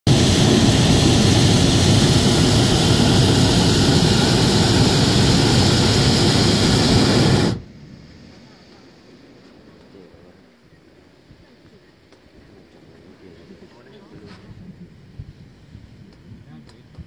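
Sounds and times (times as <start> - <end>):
propane burner blast: 0.0 - 8.7.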